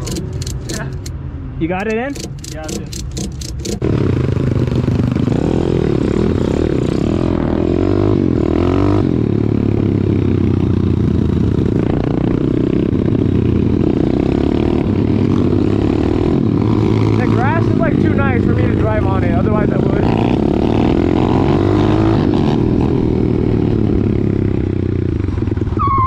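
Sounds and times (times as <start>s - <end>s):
clattering and scraping: 0.0s - 1.1s, 1.8s - 3.8s
vehicle engine rumbling: 0.0s - 26.0s.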